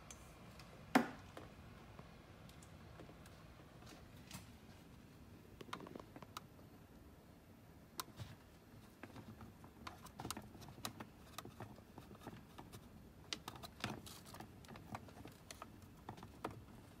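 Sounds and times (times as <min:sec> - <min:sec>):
clicks and rattles of cable connectors: 0:08.0 - 0:17.0.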